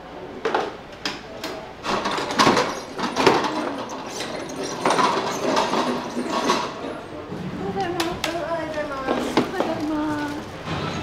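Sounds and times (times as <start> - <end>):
cart pushed across concrete: 1.8 - 7.0
steel pots clattering on cart: 1.8 - 7.0.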